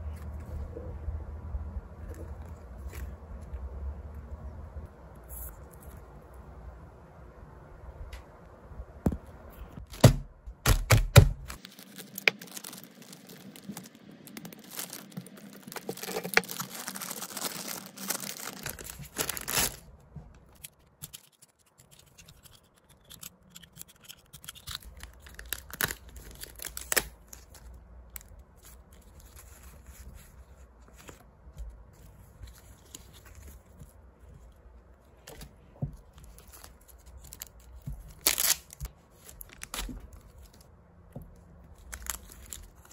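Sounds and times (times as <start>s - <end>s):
plastic sleeves rustling: 9.6s - 40.7s, 41.6s - 42.9s.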